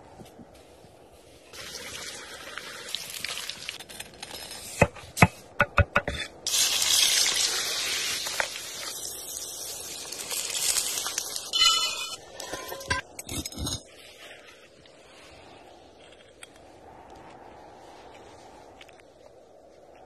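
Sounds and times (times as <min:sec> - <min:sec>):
food sizzling in hot pan: 0:06.5 - 0:12.8.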